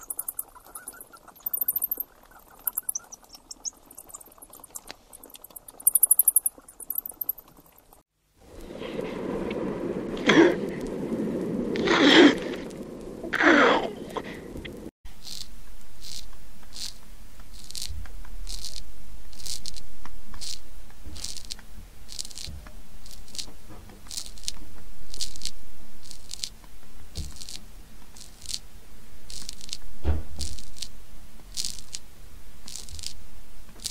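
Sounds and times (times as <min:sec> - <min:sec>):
low rumble: 0:08.4 - 0:33.8
wet soil squishing and crunching: 0:15.2 - 0:28.6
heavy thump: 0:29.8 - 0:30.6.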